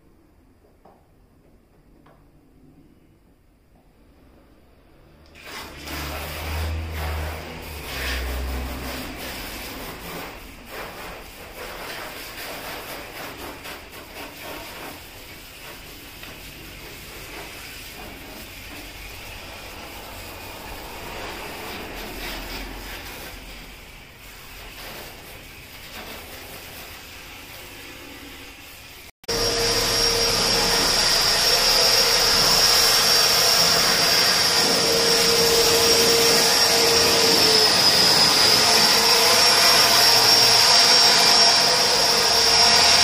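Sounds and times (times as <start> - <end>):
hose spraying water on car: 5.3 - 29.1.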